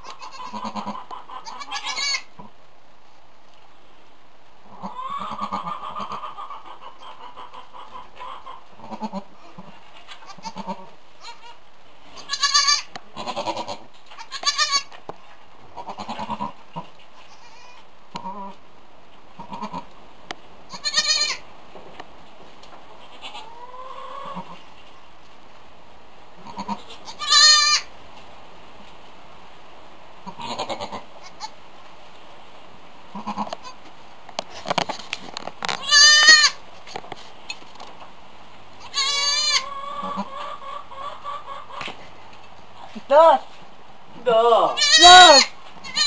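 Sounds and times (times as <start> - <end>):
goats bleating: 0.0 - 2.3, 4.8 - 6.3, 8.8 - 11.6, 12.2 - 14.9, 15.8 - 16.6, 19.4 - 19.9, 20.7 - 21.4, 26.4 - 27.9, 33.2 - 33.8, 35.8 - 36.6, 38.8 - 40.6, 44.4 - 46.0.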